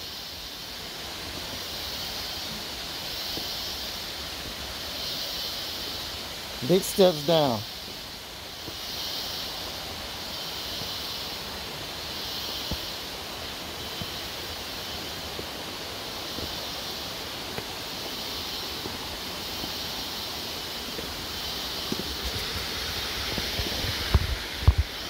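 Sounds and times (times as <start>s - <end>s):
high hiss: 0.0s - 25.0s
stream rushing over rocks: 0.0s - 25.0s
faint footsteps on stone steps: 1.2s - 1.7s, 12.5s - 13.1s, 13.8s - 25.0s.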